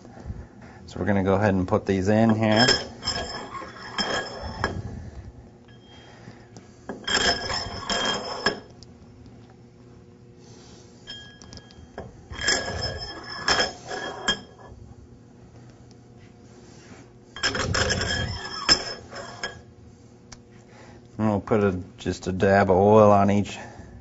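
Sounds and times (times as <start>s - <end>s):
steel rods clinking and scraping: 2.2s - 4.9s, 6.9s - 8.7s, 11.1s - 14.7s, 17.4s - 19.7s.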